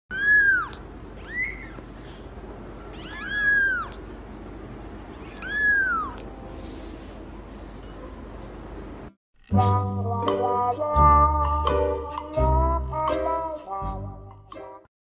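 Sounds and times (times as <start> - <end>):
kitten mewing: 0.1 - 1.9, 2.8 - 4.0, 5.2 - 6.3.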